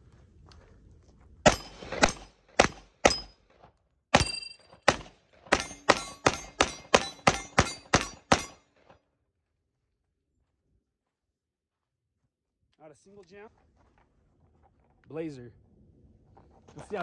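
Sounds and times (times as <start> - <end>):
pistol shots: 1.4 - 3.4, 4.1 - 8.6.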